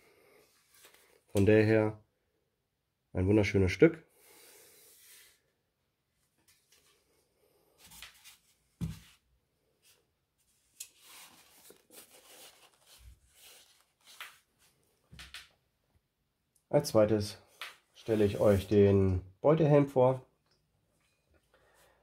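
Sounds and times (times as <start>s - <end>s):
gloved hands rubbing metal helmet: 18.0s - 18.9s.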